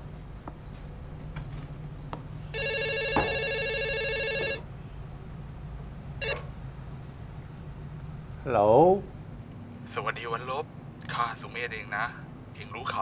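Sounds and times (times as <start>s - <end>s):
telephone ringing: 2.5s - 4.7s, 6.2s - 6.5s.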